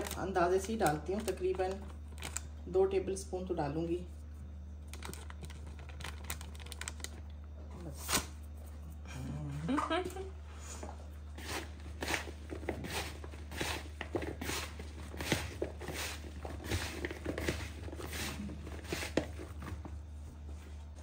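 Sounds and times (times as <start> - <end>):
okra rustling in plastic bowl: 11.4 - 19.9.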